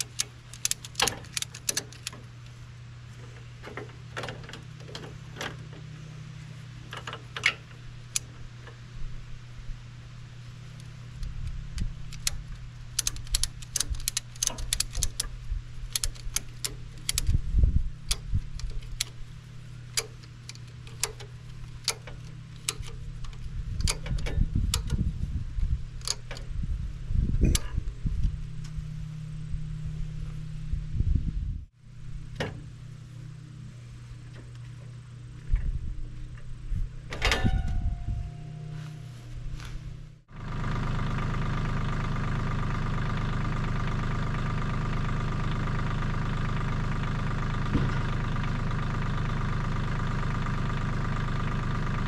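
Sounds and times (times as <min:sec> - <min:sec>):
ratchet strap clicking: 0:00.0 - 0:02.2, 0:10.8 - 0:25.0, 0:26.0 - 0:26.5.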